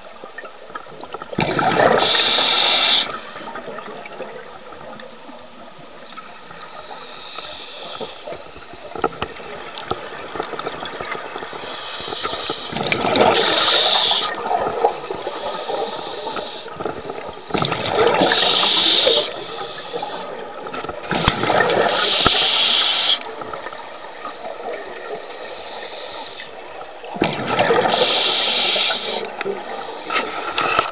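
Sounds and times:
regulator bubbles gurgling: 0.0s - 30.9s
watery hiss: 1.5s - 3.6s, 6.6s - 8.6s, 11.2s - 16.8s, 18.0s - 20.7s, 21.4s - 23.8s, 25.0s - 26.7s, 27.4s - 30.9s.

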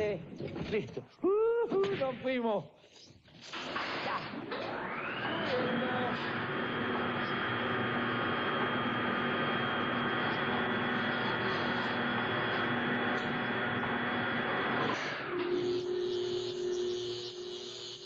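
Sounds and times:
electronic hum with high whine: 4.4s - 18.0s.

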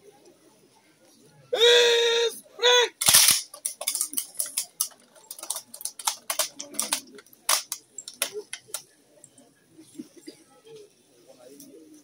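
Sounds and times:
metallic rifle action clicks: 3.0s - 8.8s.

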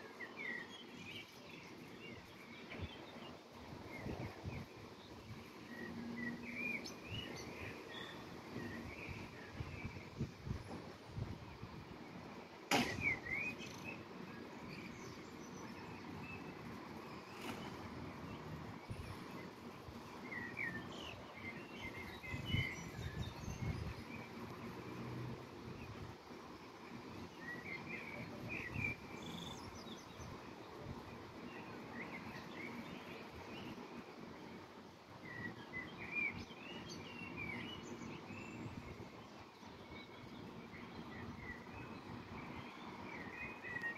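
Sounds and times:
sharp click: 12.7s - 13.2s
small birds chirping: 26.6s - 34.4s.

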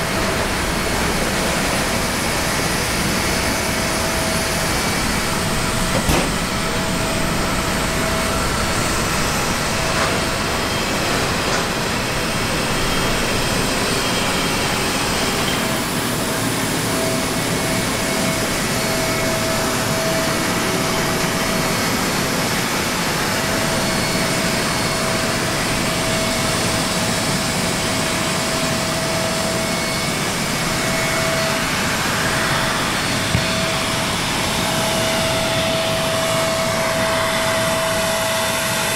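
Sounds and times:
steady high whine: 0.0s - 38.9s
turbine machinery roaring: 0.0s - 38.9s
brief knock: 5.9s - 6.4s.

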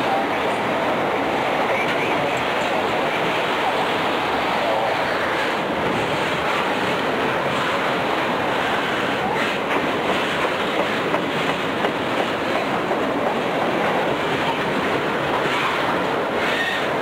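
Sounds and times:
train wheels rushing on rail: 0.0s - 17.0s
train wheel clicks: 9.3s - 14.8s.

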